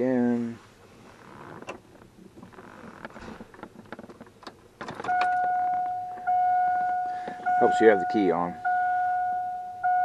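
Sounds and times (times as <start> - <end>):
steady electronic beep tone: 5.1 - 10.0.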